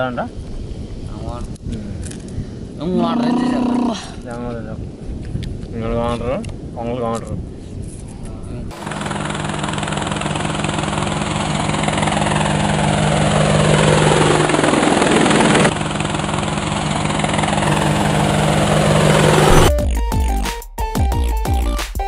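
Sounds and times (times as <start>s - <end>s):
drone propellers buzzing: 8.7s - 20.0s
whoosh sweeping past: 17.6s - 19.8s.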